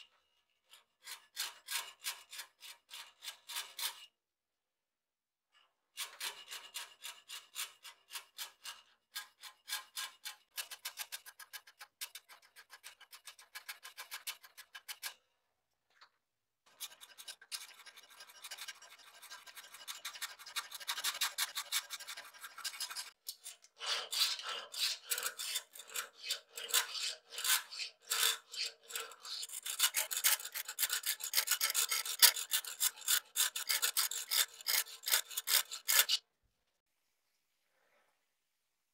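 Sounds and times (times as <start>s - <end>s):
hand file rasping on steel: 0.7s - 4.0s, 6.0s - 15.2s, 16.7s - 36.2s
round file filing through hole: 16.7s - 23.2s, 23.8s - 36.2s.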